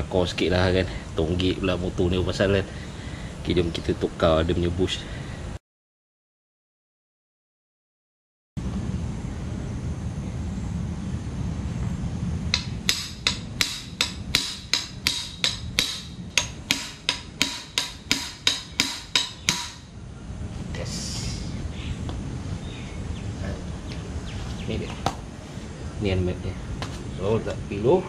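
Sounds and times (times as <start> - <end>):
hammer striking steel spanner: 12.5 - 19.9.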